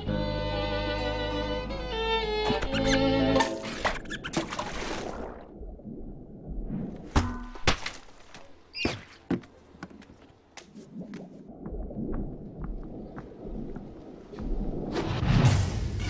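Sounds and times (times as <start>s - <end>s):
cartoon water splash: 2.6s - 5.5s
high squeaky cry: 2.7s - 3.2s.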